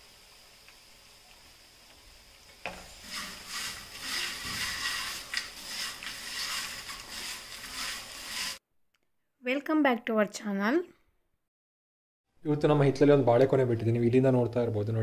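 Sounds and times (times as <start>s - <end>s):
chips rustling in a pan: 0.0s - 8.6s.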